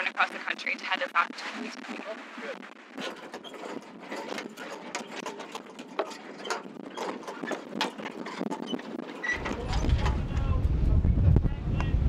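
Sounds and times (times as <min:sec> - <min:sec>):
sailboat rigging clicking and rattling: 0:02.8 - 0:10.8.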